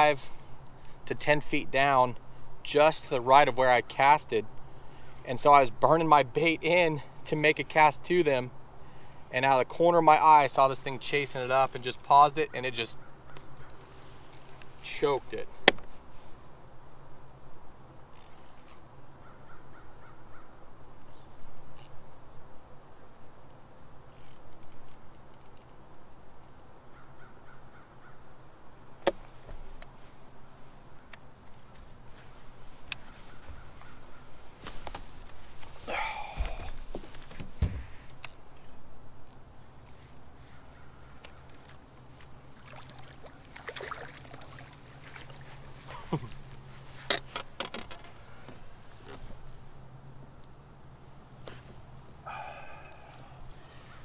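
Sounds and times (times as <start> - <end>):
fish splashing at water surface: 42.6 - 45.4.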